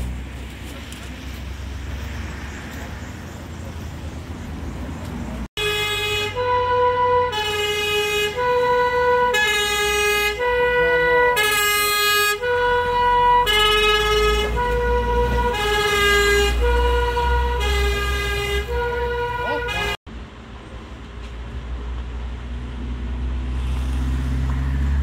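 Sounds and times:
truck engine rumbling: 0:00.0 - 0:25.0
two-tone siren: 0:05.6 - 0:20.0.

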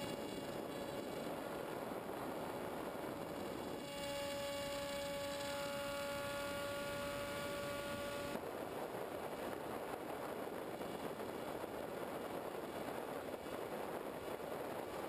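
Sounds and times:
electric motor whining: 0:00.0 - 0:01.7, 0:02.4 - 0:08.4.

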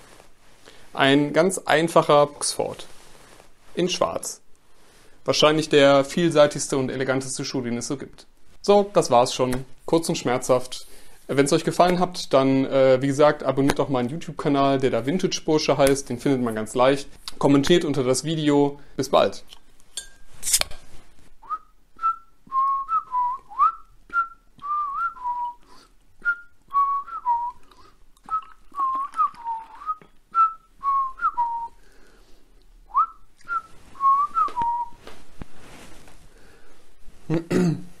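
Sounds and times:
man whistling: 0:21.4 - 0:31.8, 0:32.9 - 0:35.0.

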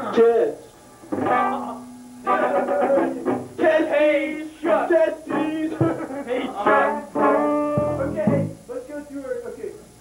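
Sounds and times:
electric guitar: 0:01.0 - 0:03.6, 0:05.3 - 0:08.7
man singing rock vocals: 0:02.3 - 0:06.9.

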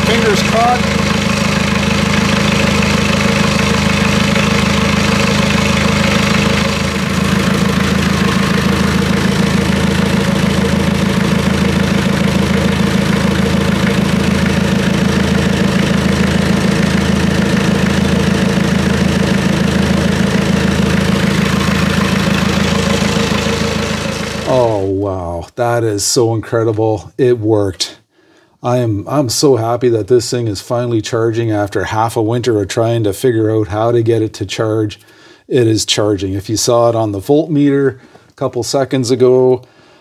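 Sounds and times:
diesel tractor engine idling: 0:00.0 - 0:24.9.

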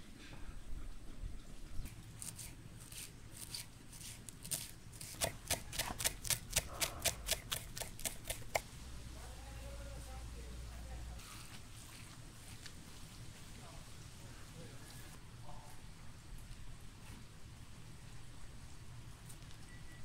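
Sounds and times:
knife chopping on wooden board: 0:04.5 - 0:08.6.

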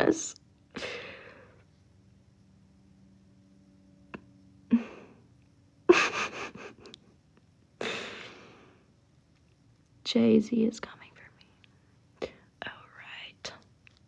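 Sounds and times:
faint steady hum: 0:00.0 - 0:14.0
woman's breathy laughter: 0:05.9 - 0:07.0.

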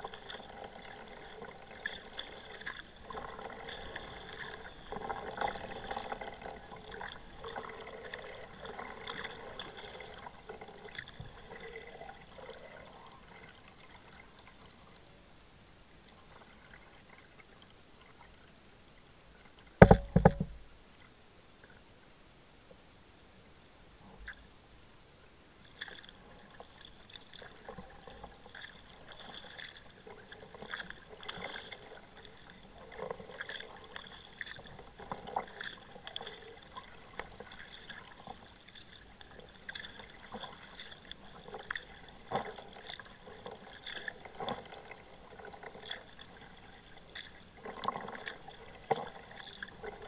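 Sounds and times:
paddle blades dipping in water: 0:00.0 - 0:14.6, 0:19.8 - 0:20.6, 0:25.6 - 0:50.0.

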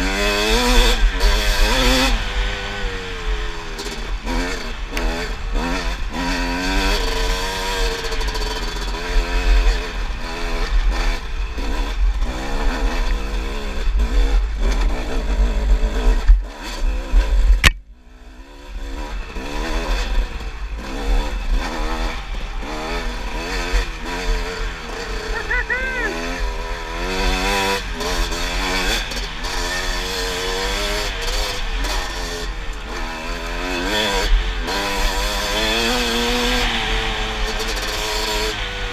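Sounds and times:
dirt bike engine revving: 0:00.0 - 0:38.9
sharp click: 0:17.6 - 0:17.8.

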